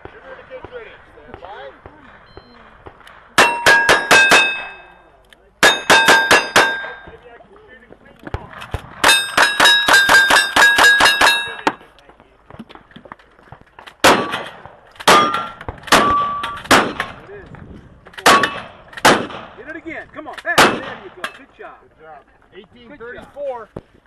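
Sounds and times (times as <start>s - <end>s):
rifle shots: 1.4s - 5.0s, 5.6s - 7.2s, 13.9s - 17.2s, 18.2s - 19.7s, 20.4s - 21.3s
steel plates ringing: 3.4s - 5.0s, 5.6s - 7.1s, 9.0s - 11.8s
shotgun blasts: 14.0s - 17.2s, 18.2s - 19.7s, 20.5s - 21.2s.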